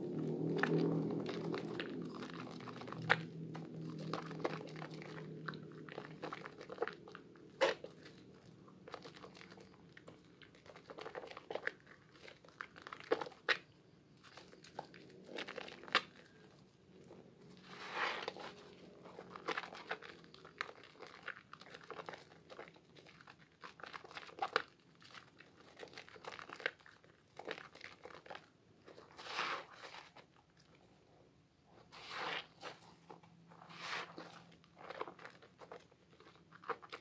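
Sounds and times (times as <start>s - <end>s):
wet squishing of soap lather: 0.0s - 31.1s, 31.7s - 37.0s
sponge squelches: 17.2s - 26.8s, 27.4s - 30.5s, 31.7s - 37.0s.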